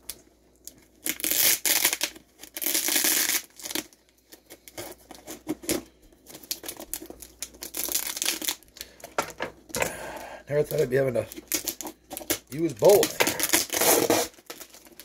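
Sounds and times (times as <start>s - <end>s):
packing tape ripping: 0.7s - 8.9s, 10.6s - 15.0s
knife scraping cardboard: 13.4s - 14.3s.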